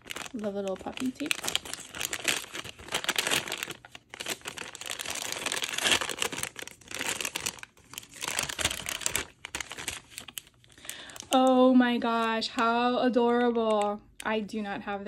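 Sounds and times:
paper bag crinkling: 0.0 - 11.5.

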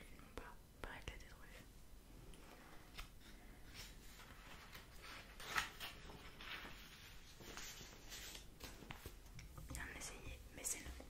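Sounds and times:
book pages rustling: 2.5 - 9.9.

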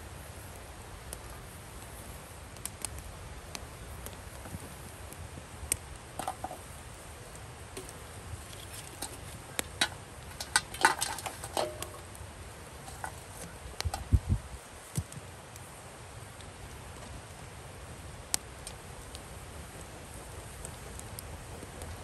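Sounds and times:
tongs clinking and scraping: 7.8 - 12.1
charcoal knocking on metal: 9.0 - 12.1.

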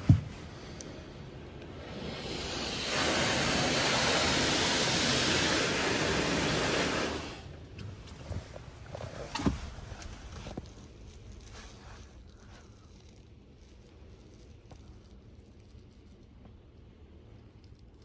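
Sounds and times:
car wash water spray hissing: 0.0 - 12.8.

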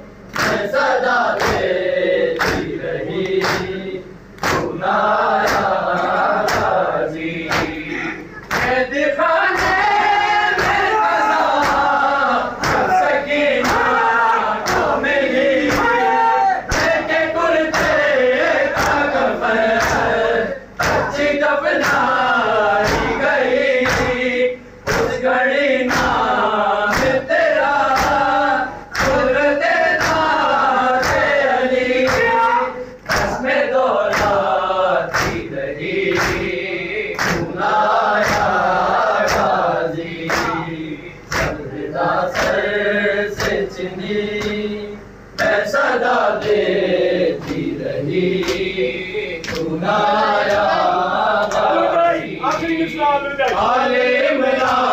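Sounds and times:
men chanting in chorus: 0.0 - 54.9
hands slapping on chests: 0.3 - 0.7, 1.4 - 1.7, 2.4 - 3.7, 4.4 - 4.8, 5.4 - 5.8, 6.4 - 6.8, 9.6 - 9.9, 11.6 - 11.9, 12.6 - 13.0, 16.7 - 17.0, 17.7 - 18.0, 18.7 - 19.1, 25.9 - 26.2, 26.9 - 27.2, 27.9 - 28.2, 28.9 - 29.2, 30.0 - 30.3, 33.0 - 33.4, 34.1 - 34.4, 35.1 - 35.4, 36.1 - 36.5, 37.2 - 37.5, 38.2 - 38.5, 39.2 - 39.5, 40.3 - 40.6, 41.3 - 41.6.

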